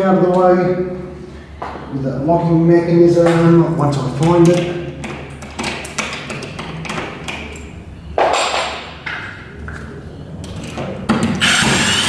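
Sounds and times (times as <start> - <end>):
cordless drill spinning: 11.4 - 12.0.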